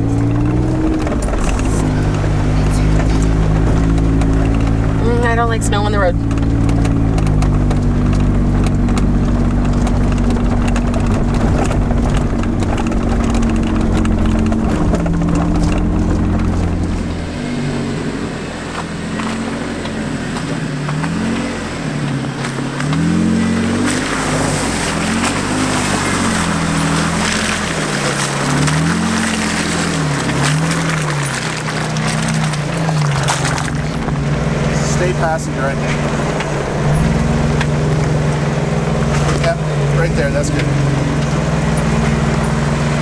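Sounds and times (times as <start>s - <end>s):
engine droning: 0.0s - 43.0s
tyres splashing in mud: 0.0s - 43.0s.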